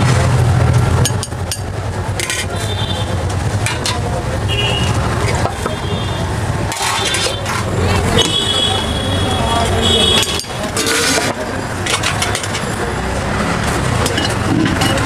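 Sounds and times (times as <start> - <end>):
street traffic noise: 0.0 - 15.0
steel utensils clinking: 3.6 - 4.2, 6.6 - 8.4, 9.4 - 15.0.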